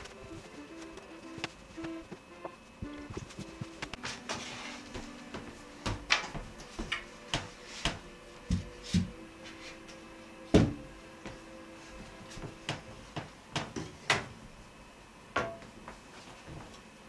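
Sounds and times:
quiet background music: 0.0 - 17.0.

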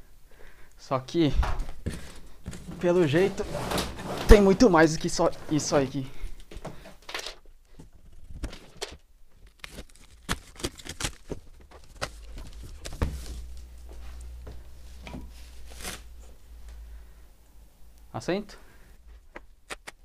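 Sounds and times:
cardboard flaps rustling: 1.4 - 5.8, 7.8 - 13.7
plastic wrapping crinkling: 7.9 - 13.7.

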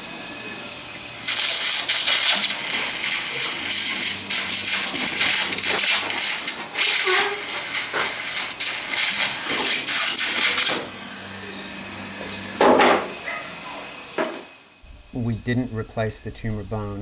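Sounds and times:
suction tip sucking hiss: 0.8 - 10.5.

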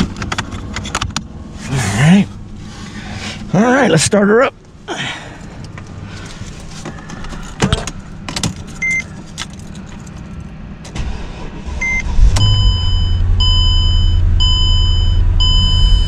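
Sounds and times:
car engine starting and idling: 0.0 - 16.0
ignition key clicks: 7.0 - 11.0
short beeps: 11.8 - 16.0.

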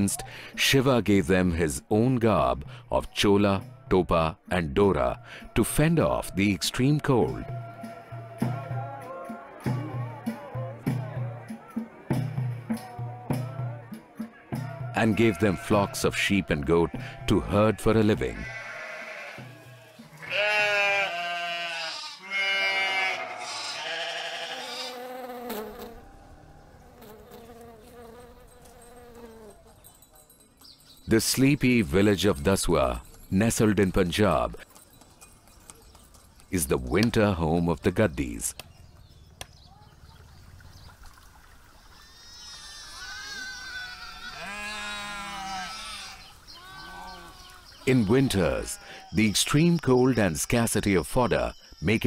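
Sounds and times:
sheep and goats bleating: 14.6 - 25.1, 42.0 - 49.3.

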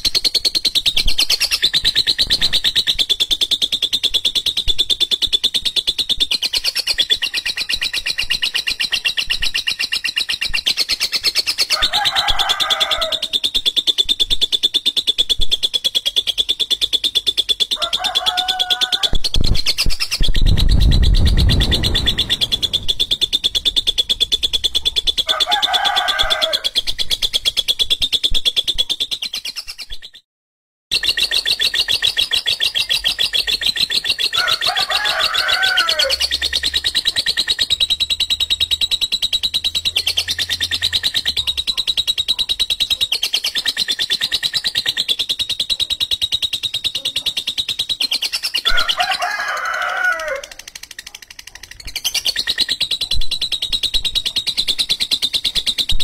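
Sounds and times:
lovebird chattering trill: 0.0 - 30.2, 30.9 - 49.2, 50.4 - 56.0
lower bird calls: 0.0 - 30.2, 30.9 - 49.0
low rumble: 20.2 - 25.2.

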